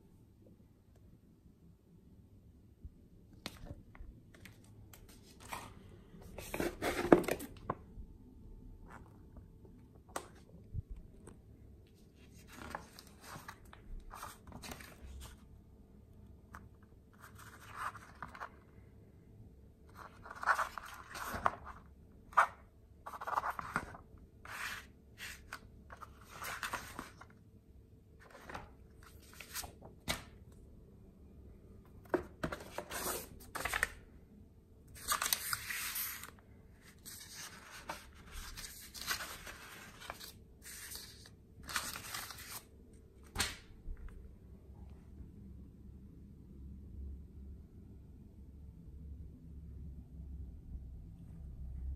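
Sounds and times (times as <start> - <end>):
paper pages rustling: 3.5 - 7.9, 10.1 - 15.5, 16.5 - 18.6, 19.9 - 27.4, 28.2 - 30.4, 32.1 - 34.0, 35.0 - 43.6
paper snapping: 43.3 - 43.7.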